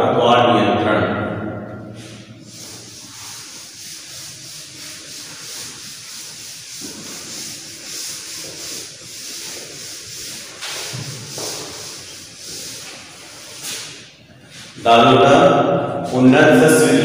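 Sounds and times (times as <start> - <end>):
duster rubbing a blackboard: 2.0 - 15.4.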